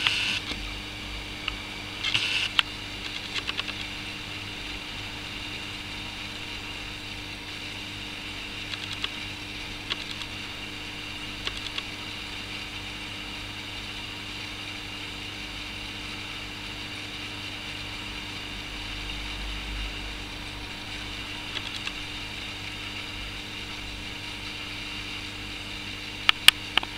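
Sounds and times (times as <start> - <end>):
aquarium equipment humming: 0.0 - 26.9
faint clicks: 8.7 - 9.1, 11.4 - 11.9.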